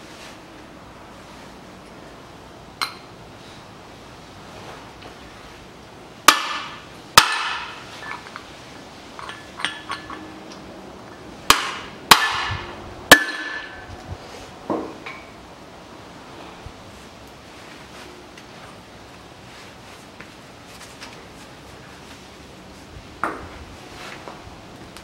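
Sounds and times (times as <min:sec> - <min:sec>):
hammer striking metal: 0:06.3 - 0:07.8, 0:11.5 - 0:13.8.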